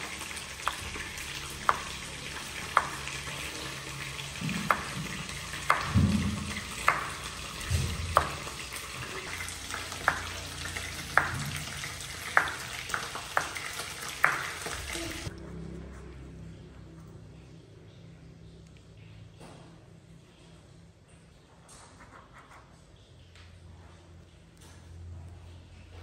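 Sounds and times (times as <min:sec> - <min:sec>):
knife hitting wooden cutting board: 0:05.7 - 0:08.5.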